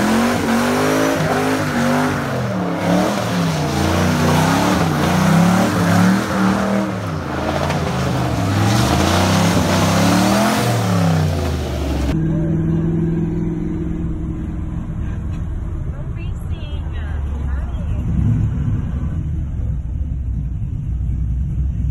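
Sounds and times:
engine revving: 0.0s - 15.5s.

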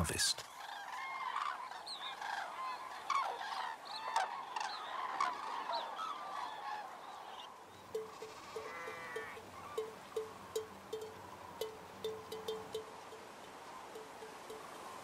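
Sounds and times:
cranes calling: 0.5s - 10.6s.

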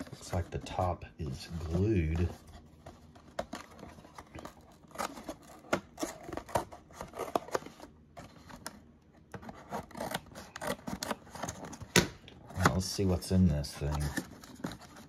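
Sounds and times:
cardboard being peeled open: 3.4s - 8.8s, 9.4s - 11.9s.

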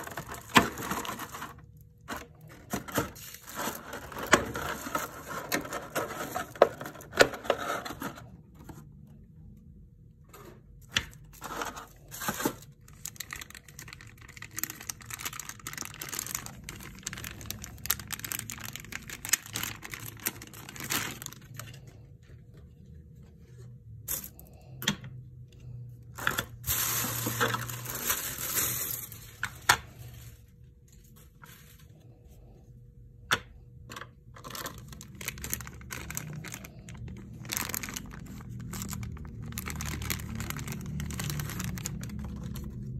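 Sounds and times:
plastic bag crinkling: 0.0s - 8.3s, 11.1s - 22.1s, 26.1s - 31.9s, 34.4s - 42.9s.

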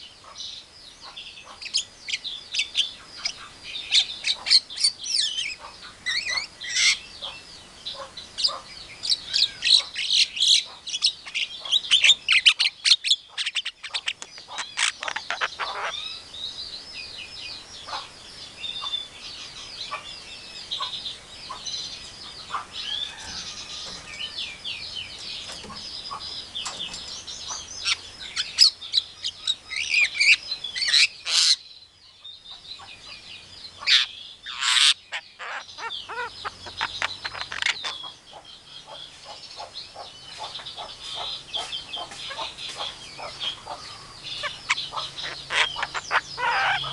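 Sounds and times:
shrill bird calls: 1.0s - 16.2s, 22.2s - 31.7s, 33.8s - 46.9s
myna chirps whistles and chatter: 38.9s - 46.9s.

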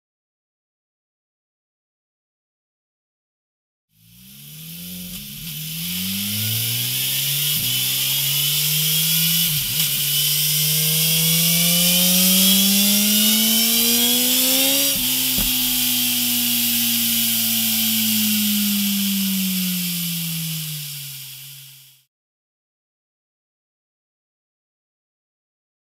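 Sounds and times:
motorcycle engine revving hard: 3.9s - 22.1s.

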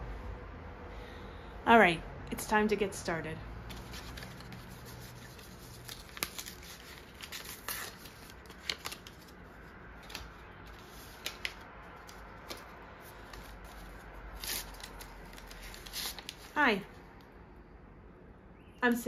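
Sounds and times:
paper rustling: 3.7s - 16.8s.

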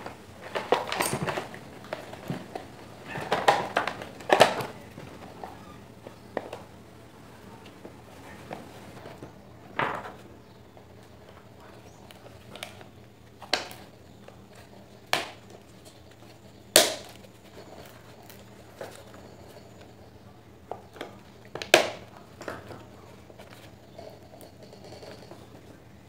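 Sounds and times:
plastic parts knocking and clicking: 0.0s - 6.7s.

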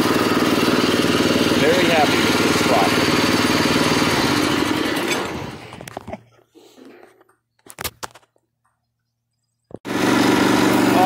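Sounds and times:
small engine running: 0.0s - 6.0s, 9.9s - 11.0s.

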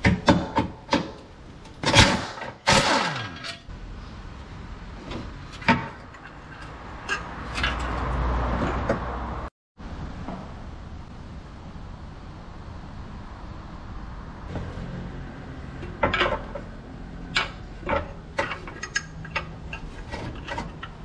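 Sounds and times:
metal knocks and clanks: 15.7s - 21.0s.

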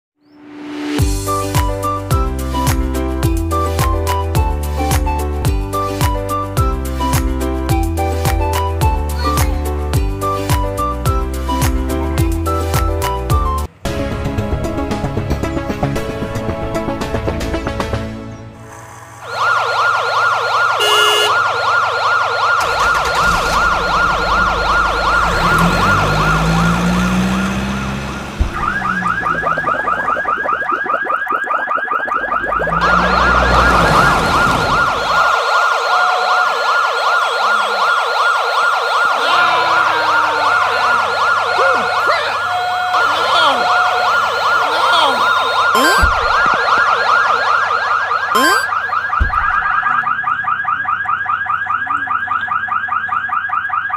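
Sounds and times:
toy police siren: 19.2s - 26.8s, 28.6s - 53.9s.

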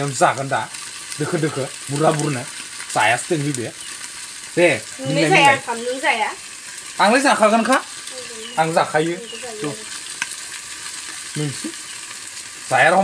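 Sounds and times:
people talking: 0.0s - 3.7s, 4.6s - 6.4s, 7.0s - 9.9s, 11.4s - 11.7s, 12.7s - 13.0s
food sizzling in a pan: 0.0s - 13.0s.

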